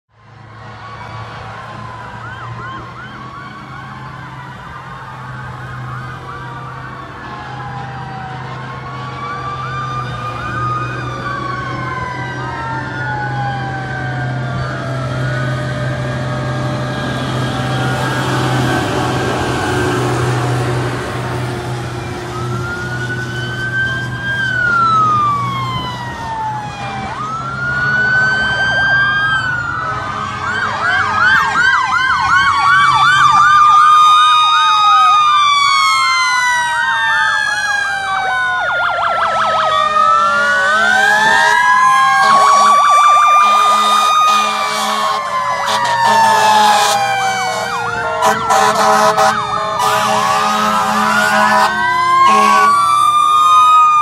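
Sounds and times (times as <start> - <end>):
fire truck sirens wailing: 0.1 - 54.0
yelping siren: 0.3 - 54.0
air horn blasts: 42.2 - 53.4.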